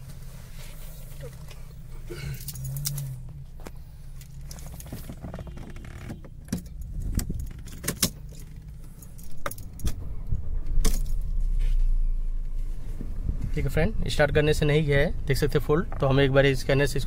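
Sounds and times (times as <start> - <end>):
car engine starting and humming: 0.0 - 17.0
car keys jangling: 1.1 - 10.0, 10.7 - 11.4
key clicking in ignition: 2.3 - 3.4, 4.2 - 10.0.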